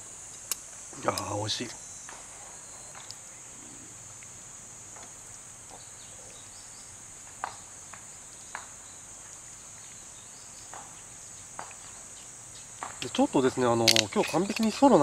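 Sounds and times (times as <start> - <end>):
insects chorus: 0.0 - 15.0
chopsticks clicking on metal pot: 13.8 - 14.8.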